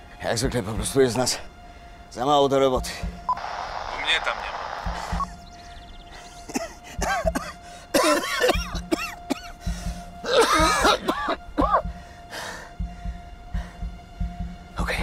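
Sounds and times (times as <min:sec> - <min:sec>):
background music: 0:00.0 - 0:15.0
man choking and coughing: 0:06.5 - 0:09.6, 0:10.2 - 0:11.8.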